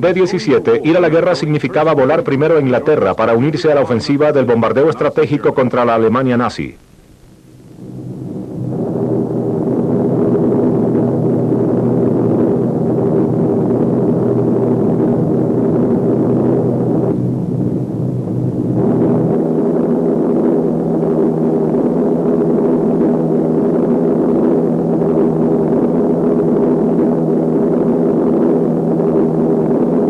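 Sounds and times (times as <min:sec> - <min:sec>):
aircraft engines droning in flight: 0:07.6 - 0:30.0.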